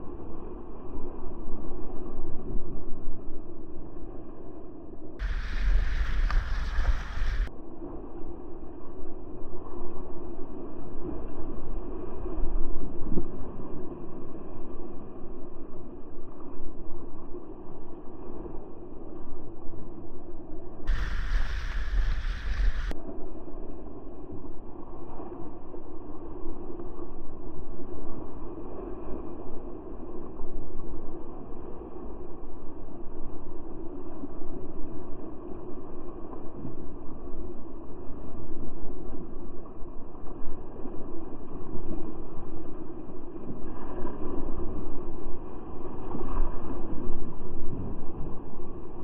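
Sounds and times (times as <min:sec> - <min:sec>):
rushing whitewater: 0:05.2 - 0:07.5, 0:20.9 - 0:22.9
wind buffeting microphone: 0:05.2 - 0:07.5, 0:20.8 - 0:32.0, 0:38.3 - 0:49.0
waves splashing over boat: 0:20.9 - 0:22.9.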